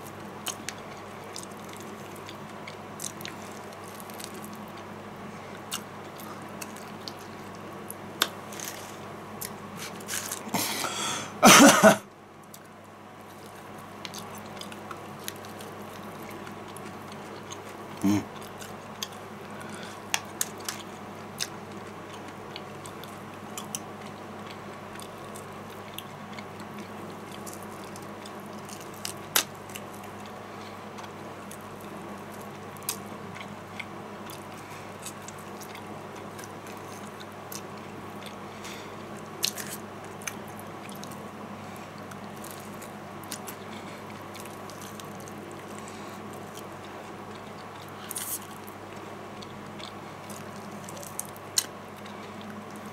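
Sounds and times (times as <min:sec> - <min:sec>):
person chewing food: 0:00.0 - 0:11.0, 0:12.4 - 0:52.9
steady background hum: 0:00.0 - 0:52.9
person humming: 0:18.0 - 0:18.3.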